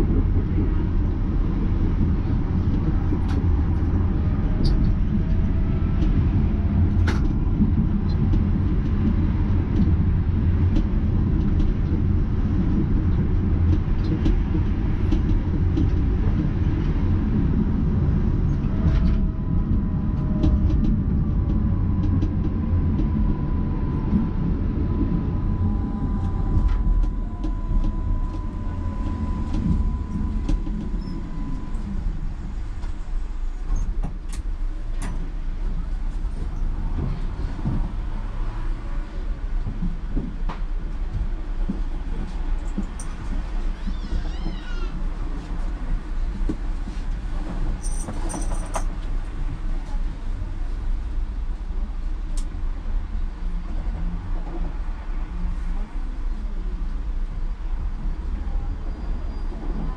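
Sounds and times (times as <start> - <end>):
tram wheels rumbling on rail: 0.0 - 59.9
gliding whine: 17.9 - 33.9.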